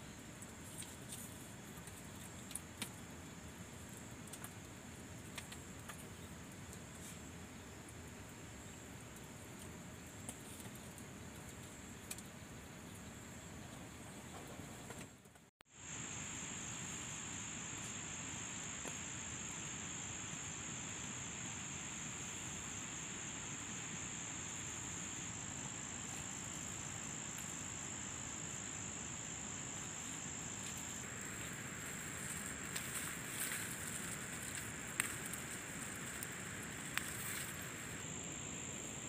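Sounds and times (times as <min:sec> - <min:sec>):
insects trilling: 0:00.0 - 0:15.0, 0:15.7 - 0:39.0
steady background hiss: 0:00.0 - 0:39.0
leaves rustling: 0:21.7 - 0:39.0.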